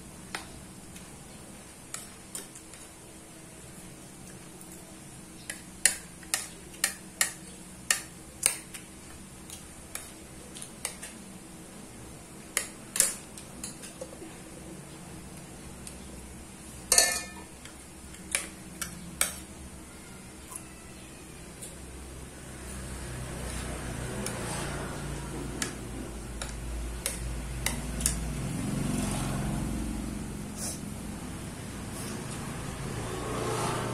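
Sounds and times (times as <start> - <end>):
spoon clattering: 16.9 - 17.5
spoon clinking on a plate: 16.9 - 17.5.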